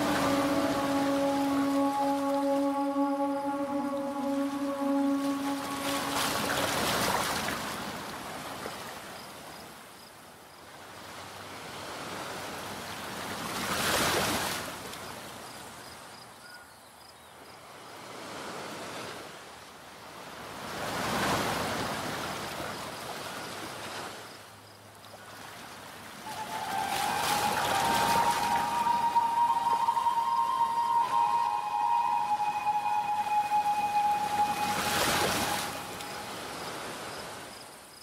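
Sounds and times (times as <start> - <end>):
waves washing onto shore: 0.0 - 9.2, 25.3 - 37.5.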